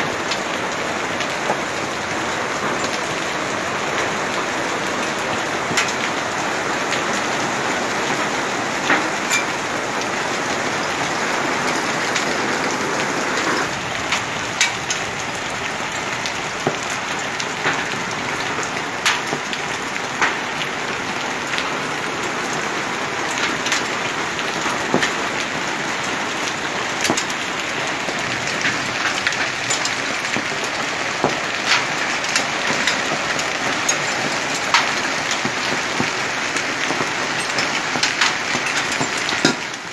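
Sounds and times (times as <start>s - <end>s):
heavy rain hissing on street: 0.0s - 39.9s
raindrops ticking on surfaces: 0.0s - 39.9s.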